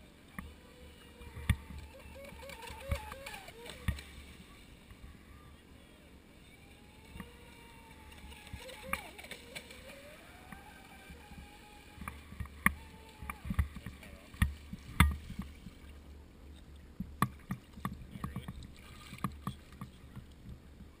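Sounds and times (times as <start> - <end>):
electric motor whine: 6.0 - 14.3.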